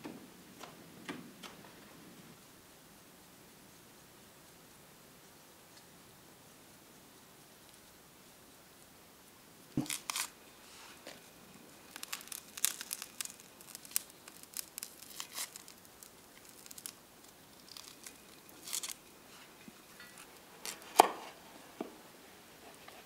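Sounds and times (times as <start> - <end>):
wood crackling in stove: 0.0 - 23.0
knife scraping vegetable skin: 9.8 - 10.4, 11.9 - 15.8, 17.6 - 19.0, 19.9 - 21.4.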